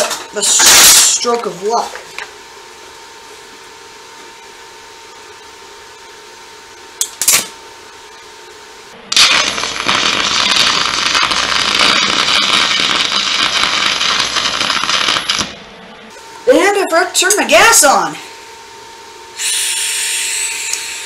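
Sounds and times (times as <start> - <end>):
welding arc snaps: 7.0 - 7.5, 9.1 - 15.6
welding arc crackling: 9.1 - 15.6.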